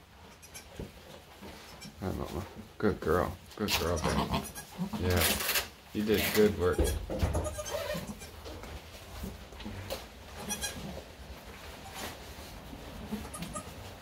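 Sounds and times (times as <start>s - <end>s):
goat bleats: 3.7s - 5.4s, 6.3s - 8.4s, 10.4s - 10.9s, 13.1s - 13.8s
rustling in straw: 10.3s - 14.0s.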